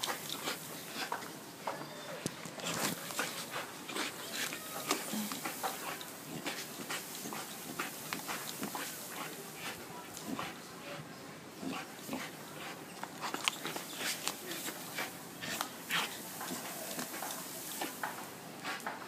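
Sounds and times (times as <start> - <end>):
dog clicking and scuffing: 0.0 - 10.6, 11.6 - 19.0.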